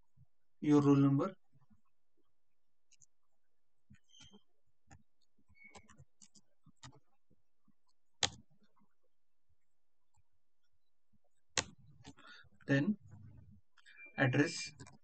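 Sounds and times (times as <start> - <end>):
keyboard key clicks: 8.2 - 8.4.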